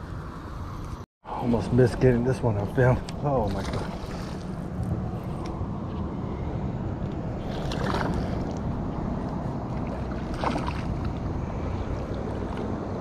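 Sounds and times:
wind rumble on microphone: 0:00.0 - 0:13.0
water lapping against boat hull: 0:02.6 - 0:06.2, 0:07.0 - 0:13.0.

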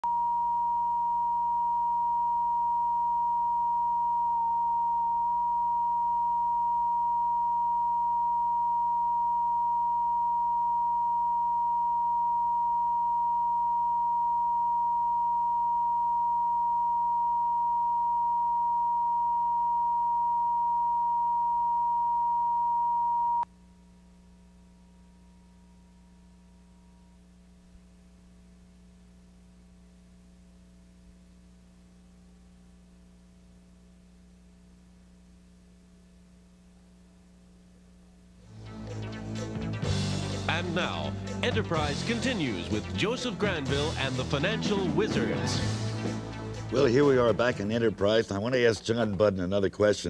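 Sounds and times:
steady test tone: 0:00.0 - 0:28.0
faint hum: 0:00.0 - 0:39.2.

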